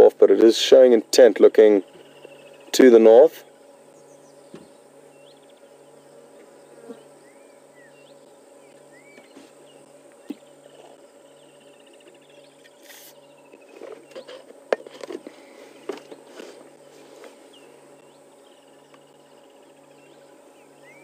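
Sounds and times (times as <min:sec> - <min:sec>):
insects buzzing: 0:00.0 - 0:21.0
bird chirping: 0:01.8 - 0:02.8, 0:03.4 - 0:14.4, 0:17.5 - 0:21.0
bird trill: 0:07.2 - 0:14.3, 0:17.5 - 0:21.0.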